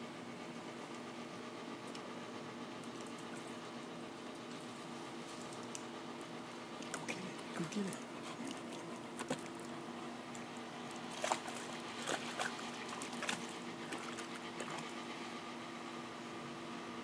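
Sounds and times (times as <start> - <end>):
steady mechanical hum: 0.0 - 17.0
water splashing: 10.4 - 14.9.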